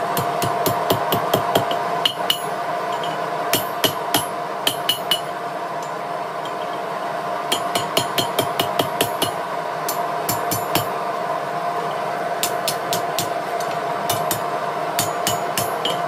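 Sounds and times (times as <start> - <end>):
steady hum: 0.0 - 16.0
hammer striking hot metal on anvil: 0.2 - 6.8, 7.5 - 10.9, 12.4 - 16.0.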